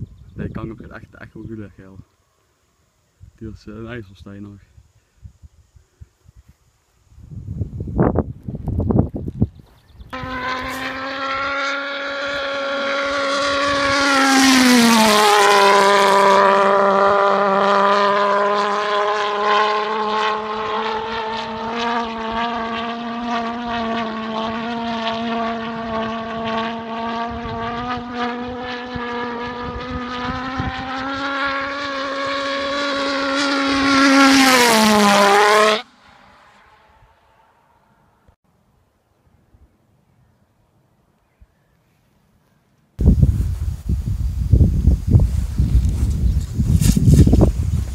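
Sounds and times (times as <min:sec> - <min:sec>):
pulse jet buzzing drone: 0:10.2 - 0:38.4.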